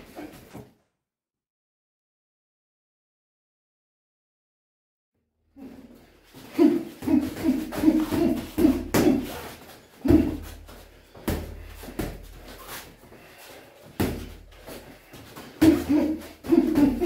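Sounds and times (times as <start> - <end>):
boxing gloves thudding: 7.0 - 12.6, 13.8 - 14.8, 15.4 - 17.0.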